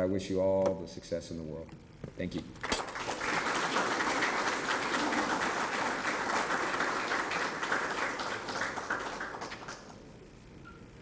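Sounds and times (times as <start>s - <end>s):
audience applauding: 2.6s - 10.0s.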